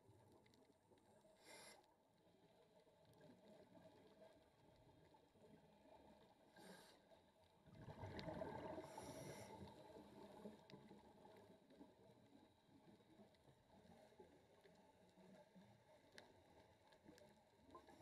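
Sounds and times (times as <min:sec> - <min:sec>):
exhaled bubbles underwater: 0:07.6 - 0:16.0.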